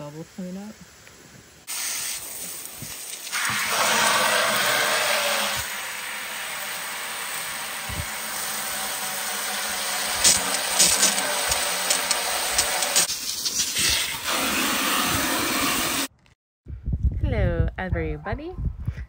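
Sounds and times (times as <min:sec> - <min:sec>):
hose spraying water into bucket: 0:01.7 - 0:16.1.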